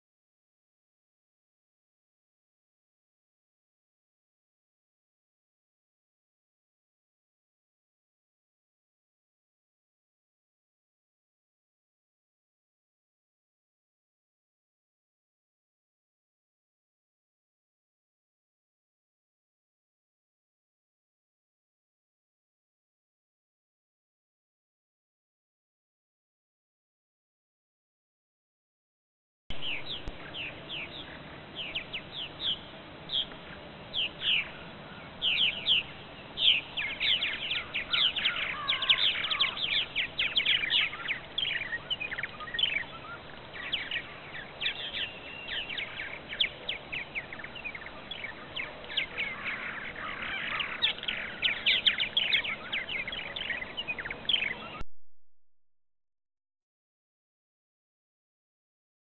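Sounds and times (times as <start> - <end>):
birds chirping in busy chatter: 29.5 - 54.8.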